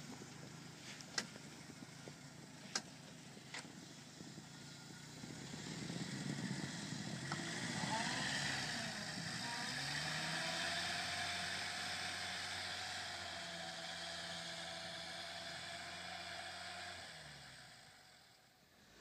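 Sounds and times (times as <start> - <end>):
car engine driving away: 0.0 - 19.0.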